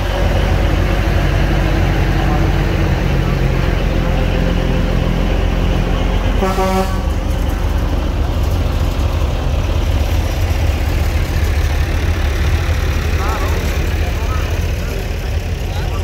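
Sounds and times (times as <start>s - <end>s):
tractor engines running: 0.0s - 16.0s
horn toot: 6.4s - 7.2s.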